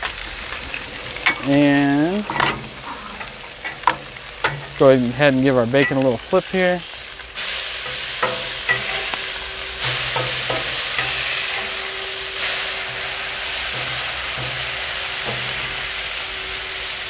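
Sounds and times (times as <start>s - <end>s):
bacon sizzling on a griddle: 0.0s - 17.0s
metal spatula scraping steel: 7.8s - 16.5s.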